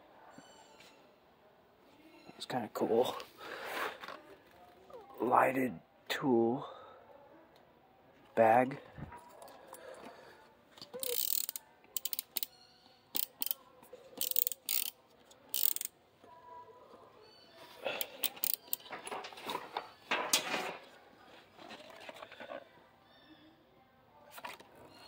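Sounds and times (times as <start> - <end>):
ratchet-like clicks: 11.0 - 12.5, 13.1 - 13.6, 14.2 - 15.9, 18.2 - 18.9.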